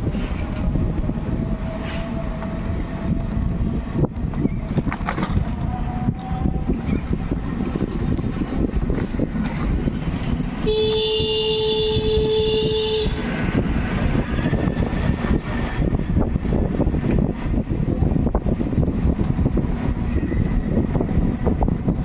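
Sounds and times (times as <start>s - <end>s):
wind and road noise: 0.0s - 22.0s
vehicle horn: 10.6s - 13.4s.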